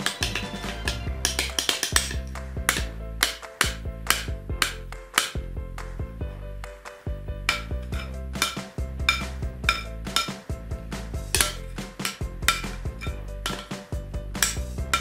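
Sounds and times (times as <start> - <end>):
background music with beat: 0.0 - 15.0
metal spoon scraping glass bowl: 11.3 - 13.8.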